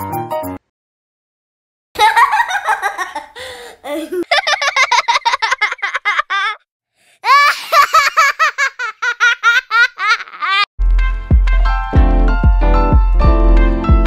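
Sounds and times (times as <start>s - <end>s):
high-pitched giggling: 2.0s - 6.6s, 7.2s - 10.7s
music with deep bass and piano: 10.8s - 14.0s.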